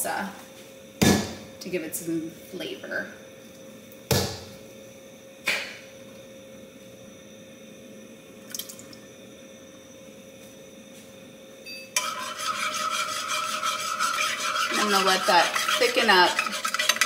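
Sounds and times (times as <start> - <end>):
faint steady hum: 0.0 - 17.0
spoon scraping saucepan: 12.0 - 17.0.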